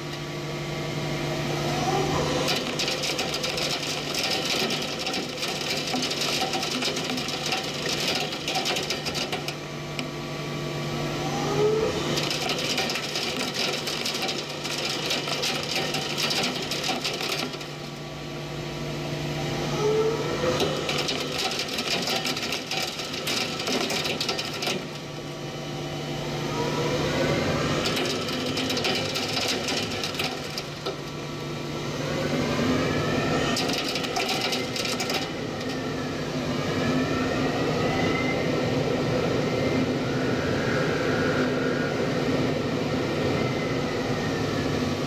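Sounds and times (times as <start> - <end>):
lathe machine hum: 0.0 - 39.9
rising machine whine: 10.1 - 21.8, 22.6 - 45.0.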